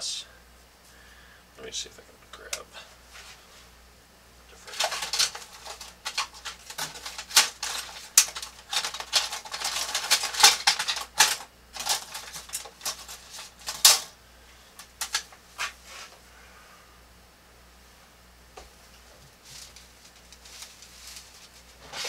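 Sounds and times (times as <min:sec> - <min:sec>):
small tools clicking and clattering: 0:04.7 - 0:14.1, 0:14.8 - 0:15.4.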